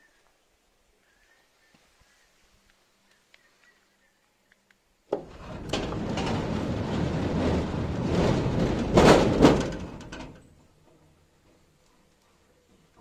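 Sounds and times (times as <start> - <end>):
gate knocks: 5.1 - 10.4
gate clunk: 5.1 - 10.6
sliding gate motor rumbling: 5.1 - 10.6.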